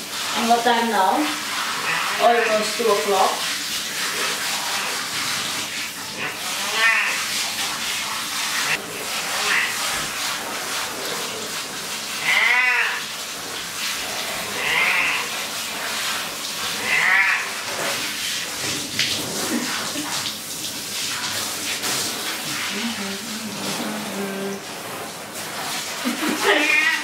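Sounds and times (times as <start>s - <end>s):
hand shower spraying: 0.0s - 27.0s
cat meowing: 6.6s - 7.2s, 9.4s - 9.7s, 12.2s - 13.0s, 16.8s - 17.5s, 26.5s - 27.0s.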